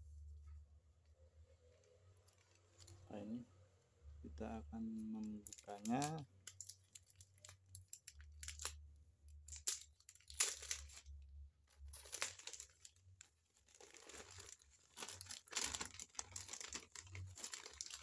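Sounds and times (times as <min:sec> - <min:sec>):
plastic packaging crinkling: 0:05.1 - 0:08.8, 0:09.4 - 0:18.0.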